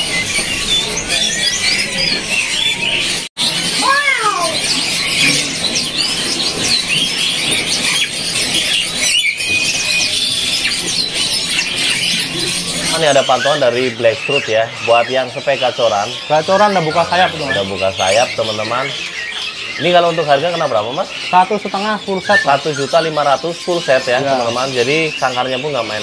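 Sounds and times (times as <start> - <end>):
songbirds chirping and trilling: 0.0 - 26.0.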